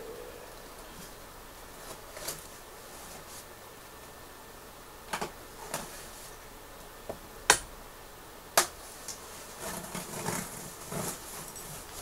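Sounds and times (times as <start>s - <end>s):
cardboard and tape rustling: 8.9s - 12.0s.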